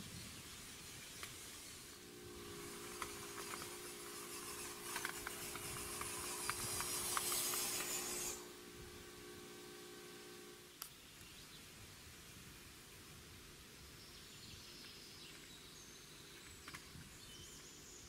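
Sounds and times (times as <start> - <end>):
small electric motor whining: 0.1 - 10.8.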